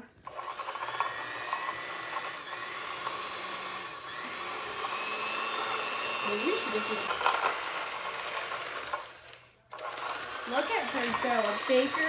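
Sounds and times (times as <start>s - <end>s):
electric hand mixer whining: 0.0s - 12.0s.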